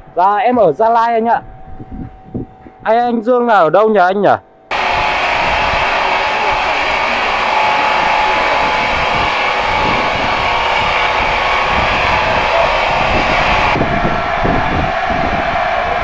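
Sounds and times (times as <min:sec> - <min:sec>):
log saw running: 0:04.7 - 0:16.0.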